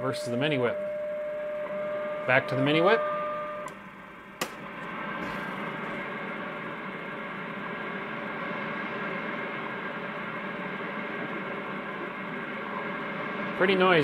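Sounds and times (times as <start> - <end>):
faint radio station: 0.0 - 1.0, 1.6 - 14.0
radio static hiss: 3.9 - 14.0.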